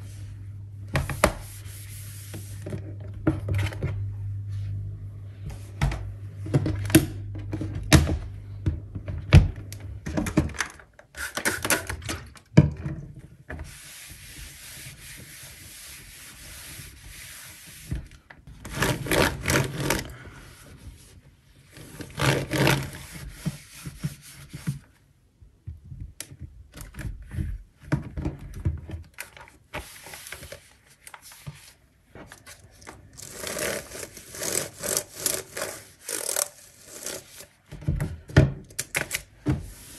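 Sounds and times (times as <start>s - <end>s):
cloth wiping over laptop: 1.4s - 2.6s.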